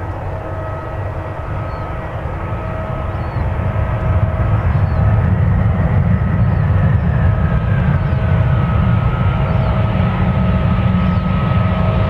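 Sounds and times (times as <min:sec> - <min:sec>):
jet engines rumbling and whining: 0:00.0 - 0:12.0.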